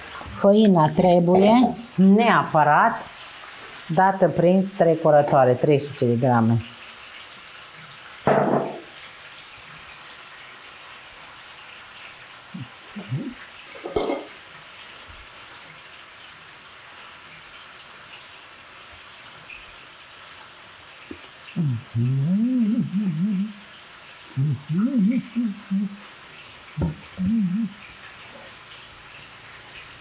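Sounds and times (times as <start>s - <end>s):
sharp knock: 8.3s - 8.9s.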